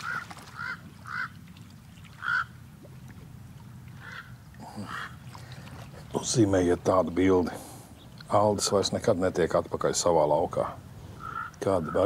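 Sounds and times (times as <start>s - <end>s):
waterfowl calling: 0.0s - 3.0s, 3.6s - 8.4s, 10.6s - 12.0s
low steady background: 0.7s - 12.0s.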